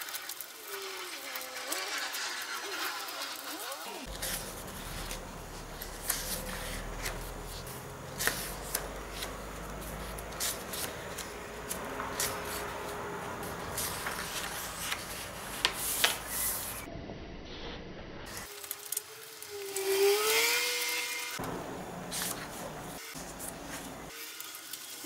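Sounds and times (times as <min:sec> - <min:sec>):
paper rustling: 0:00.0 - 0:16.9, 0:18.3 - 0:25.0
book page flicks: 0:04.1 - 0:12.8.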